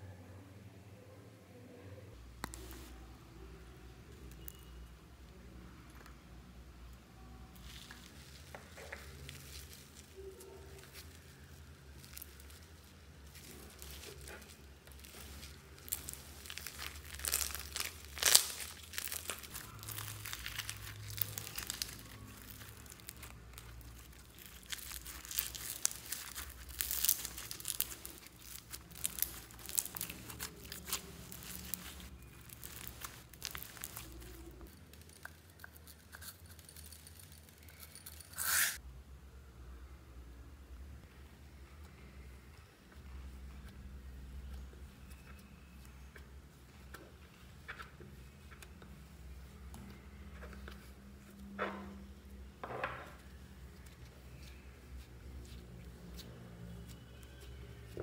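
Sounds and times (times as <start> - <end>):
slime squished by hand: 7.6 - 35.9
wet crackling and popping: 7.8 - 37.8.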